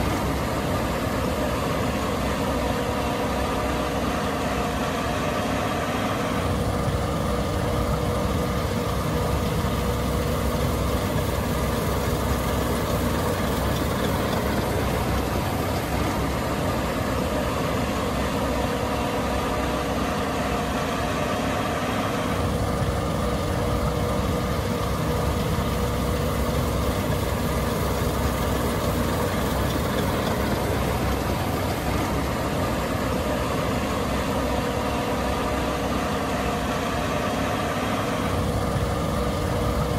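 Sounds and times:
combine engine drone: 0.0s - 39.9s
held whining tone: 6.4s - 18.1s, 22.4s - 34.6s.

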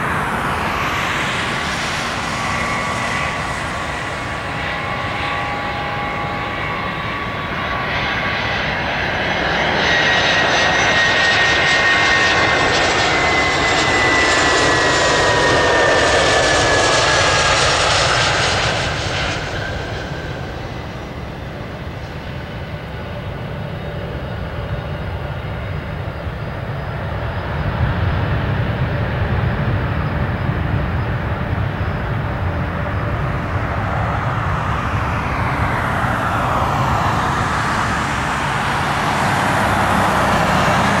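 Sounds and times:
jet engines rushing: 0.0s - 41.0s.

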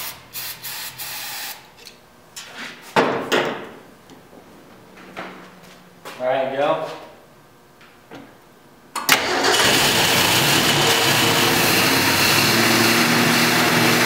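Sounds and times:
car engine starting and running: 9.0s - 14.0s.

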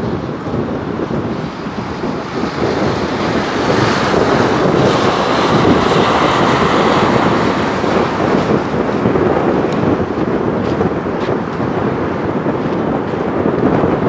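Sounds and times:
helicopter flying past: 2.0s - 10.2s.

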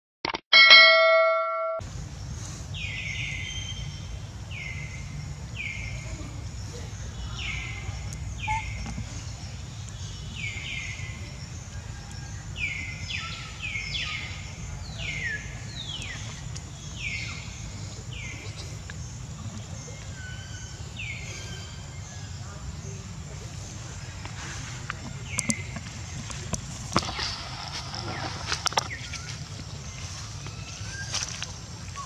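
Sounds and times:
bell-like chime: 0.6s - 1.8s
low outdoor rumble: 1.8s - 32.0s
bird chirping: 1.9s - 32.0s.

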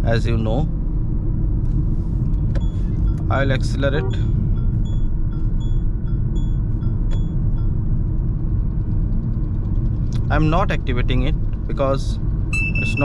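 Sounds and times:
car engine and tyres rumbling: 0.0s - 13.0s
short high chirps: 12.6s - 13.0s.

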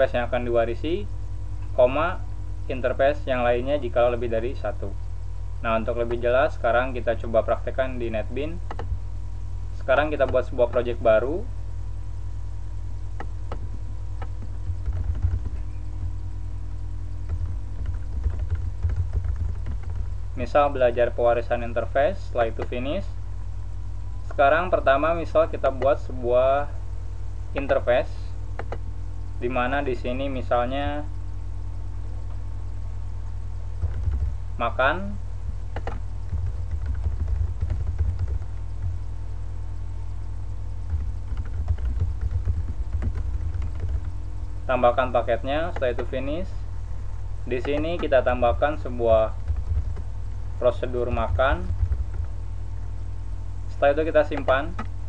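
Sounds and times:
steady low hum: 0.0s - 55.0s
keyboard typing: 8.6s - 9.0s, 13.2s - 20.2s, 28.5s - 28.9s, 33.8s - 34.4s, 35.4s - 39.1s, 40.8s - 44.3s, 47.5s - 53.0s, 54.2s - 55.0s.

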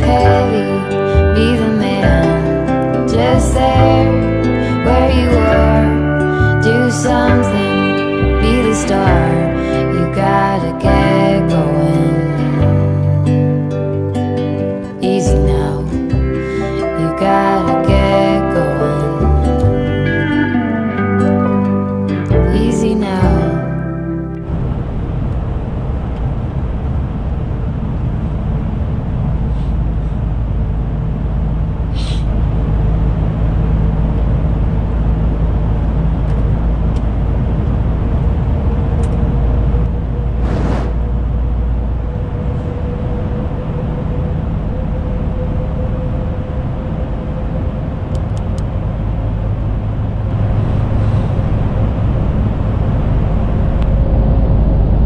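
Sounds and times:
steady whine: 0.0s - 55.0s
truck engine and road rumble: 0.0s - 55.0s.

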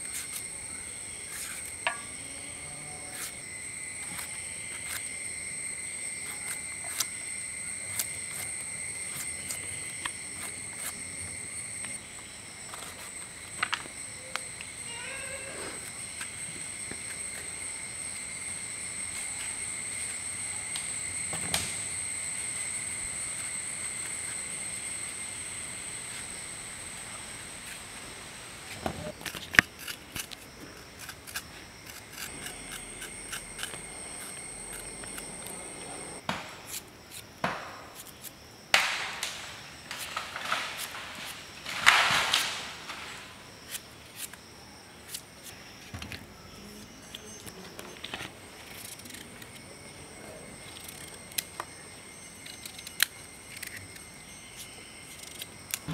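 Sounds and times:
insect buzzing: 0.0s - 47.7s.

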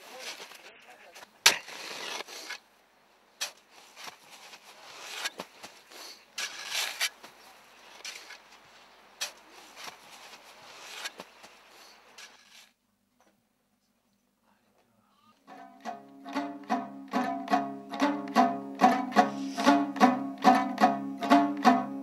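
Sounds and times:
shovels scraping snow: 0.0s - 0.8s, 1.4s - 2.6s, 3.4s - 12.8s.

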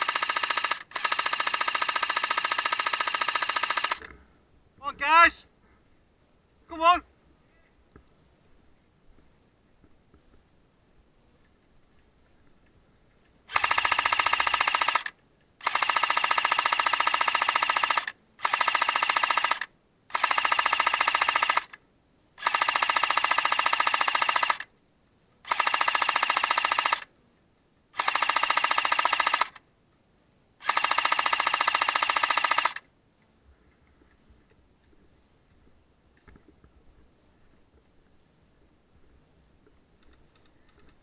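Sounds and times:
airsoft gun firing full auto: 0.0s - 4.1s, 13.5s - 21.8s, 22.4s - 24.7s, 25.5s - 27.1s, 28.0s - 29.6s, 30.6s - 32.8s.

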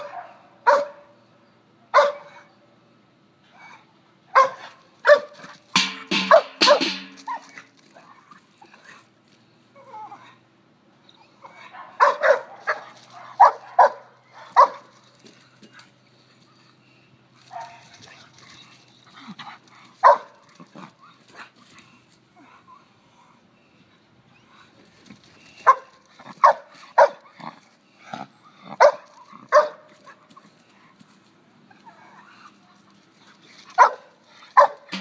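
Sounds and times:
dog barking: 0.0s - 1.1s, 1.9s - 2.5s, 4.3s - 5.4s, 6.2s - 6.9s, 11.6s - 14.9s, 20.0s - 20.3s, 25.6s - 27.2s, 28.8s - 29.8s, 33.8s - 34.9s.

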